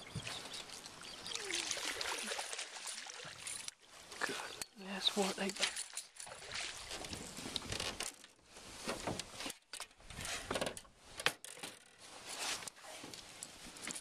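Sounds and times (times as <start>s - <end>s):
landing net rustling and scraping: 3.2s - 14.0s.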